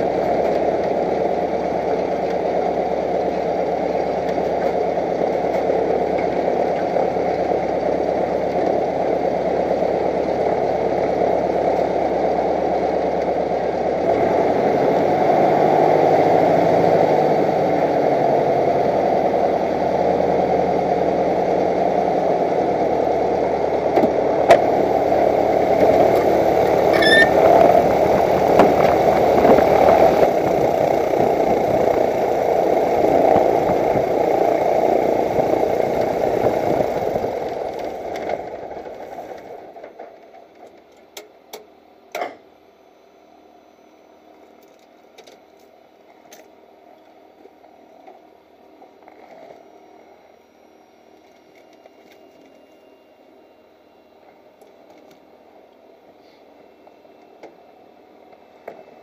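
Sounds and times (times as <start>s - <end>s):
aircraft piston engine idling: 25.3s - 38.1s.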